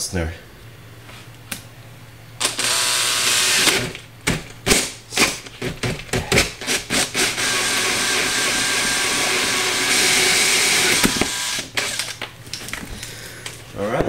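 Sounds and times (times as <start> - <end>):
cordless drill boring plastic: 2.4 - 4.0, 6.6 - 12.2.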